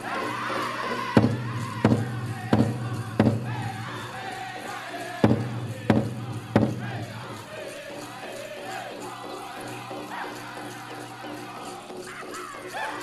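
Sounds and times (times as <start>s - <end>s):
person singing: 0.0s - 13.0s
big drum beats: 1.0s - 7.5s.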